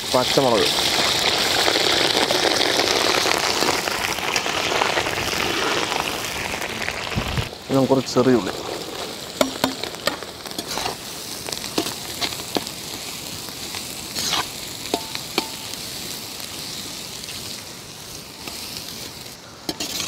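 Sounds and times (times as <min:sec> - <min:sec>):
shallots sizzling in oil: 0:00.0 - 0:20.0
ladle clicking and scraping pan: 0:09.4 - 0:11.0, 0:11.7 - 0:12.4, 0:19.7 - 0:20.0.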